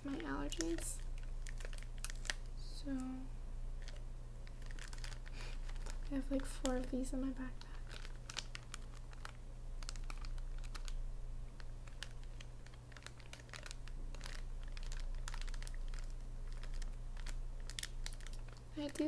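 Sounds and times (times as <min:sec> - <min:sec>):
low steady hum: 0:00.0 - 0:19.0.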